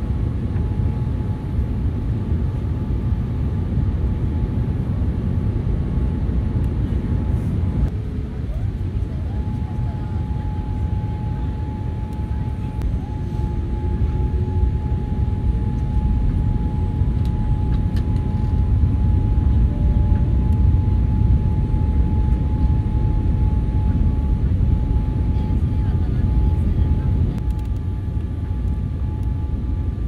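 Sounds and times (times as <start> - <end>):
airflow and engine rush: 0.0 - 30.0.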